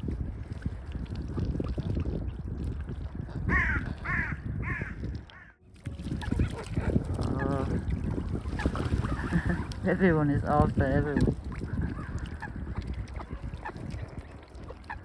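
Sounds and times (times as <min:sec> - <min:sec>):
waterbirds calling: 0:00.0 - 0:15.0
wind buffeting microphone: 0:00.0 - 0:15.0
crows calling: 0:03.5 - 0:05.6.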